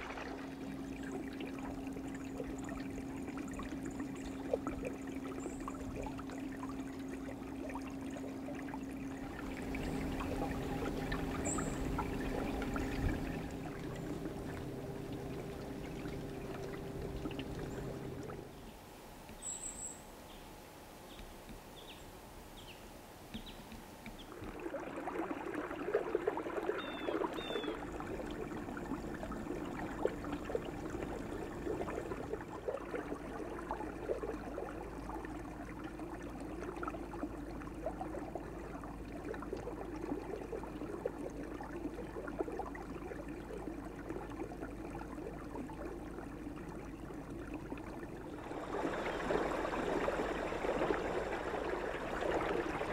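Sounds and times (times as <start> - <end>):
steady low hum: 0.0 - 52.9
water lapping and trickling: 0.0 - 52.9
faint bird chirps: 11.3 - 11.9, 19.4 - 20.4, 26.8 - 27.8.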